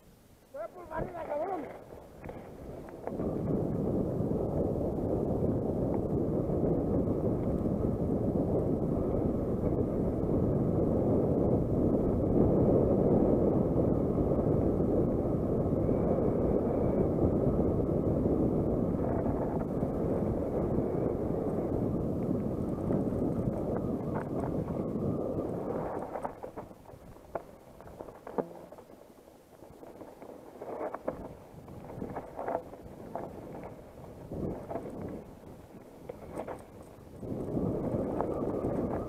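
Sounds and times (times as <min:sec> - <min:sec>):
bike tyres rolling over dirt: 0:00.5 - 0:39.0
wind buffeting microphone: 0:00.5 - 0:39.0.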